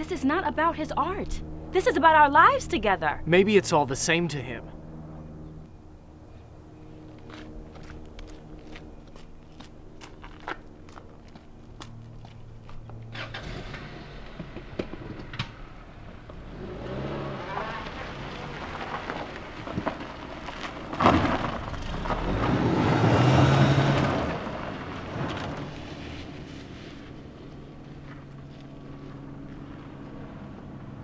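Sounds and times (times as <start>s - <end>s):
car engine running: 6.8s - 31.0s
tyres crunching over gravel: 7.1s - 15.2s, 16.0s - 31.0s.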